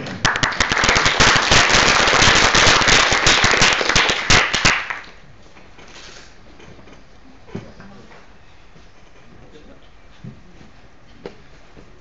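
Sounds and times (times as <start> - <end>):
audience applause: 0.0 - 5.1.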